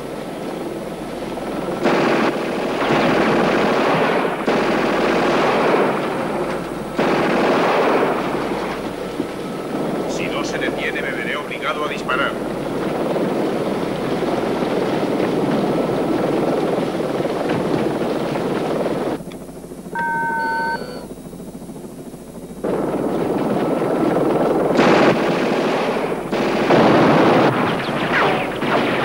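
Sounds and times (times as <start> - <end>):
helicopter rotor noise: 0.0 - 29.0
rapid gunfire: 1.8 - 9.1, 22.6 - 29.0
short electronic beep: 20.0 - 21.1.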